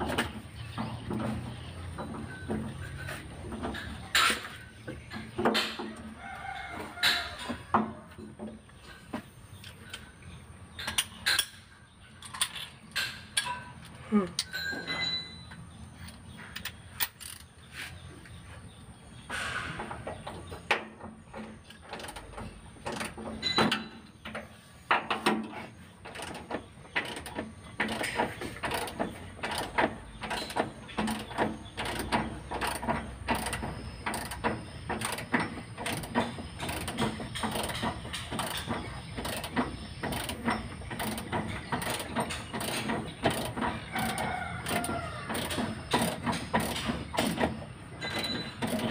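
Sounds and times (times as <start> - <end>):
hand ratchet clicking: 26.1 - 47.5.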